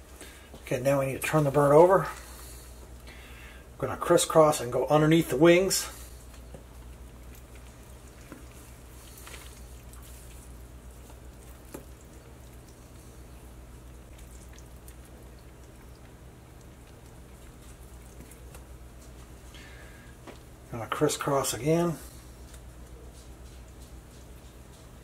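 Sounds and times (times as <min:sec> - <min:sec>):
steady low hum: 0:00.0 - 0:25.0
hands rustling string: 0:06.2 - 0:13.0.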